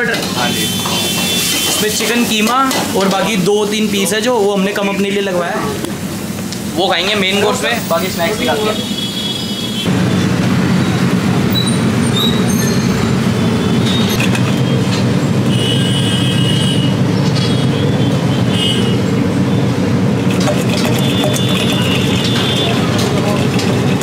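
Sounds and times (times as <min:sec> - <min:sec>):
low machine drone: 0:09.9 - 0:15.7, 0:16.3 - 0:24.0
utensils clinking on steel bowl: 0:20.3 - 0:24.0.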